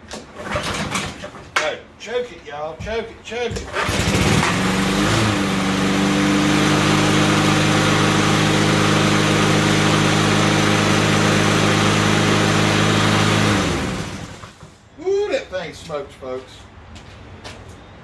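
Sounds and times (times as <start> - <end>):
lawn mower engine running: 3.7 - 14.7.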